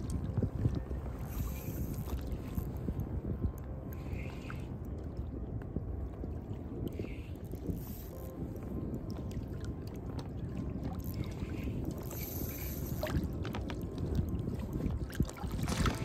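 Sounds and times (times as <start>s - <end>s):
water slapping and rushing: 0.0s - 16.0s.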